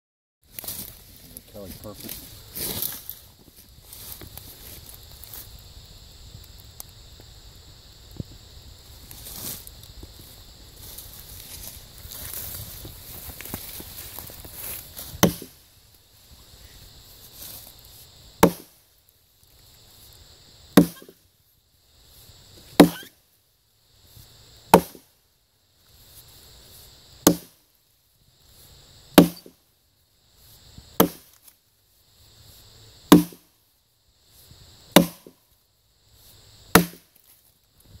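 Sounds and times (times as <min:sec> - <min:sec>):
axe chopping into log: 0:14.7 - 0:15.6, 0:18.4 - 0:18.8, 0:20.8 - 0:21.2, 0:22.8 - 0:23.1, 0:24.7 - 0:25.0, 0:27.2 - 0:27.6, 0:29.2 - 0:29.5, 0:31.0 - 0:31.4, 0:33.1 - 0:33.5, 0:35.0 - 0:35.4, 0:36.8 - 0:37.1.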